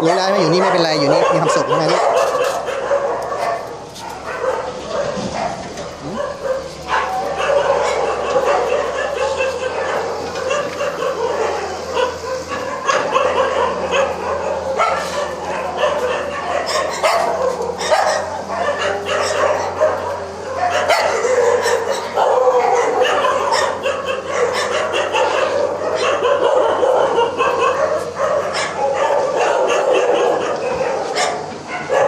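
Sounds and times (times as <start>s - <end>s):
dogs barking: 0.0s - 32.0s.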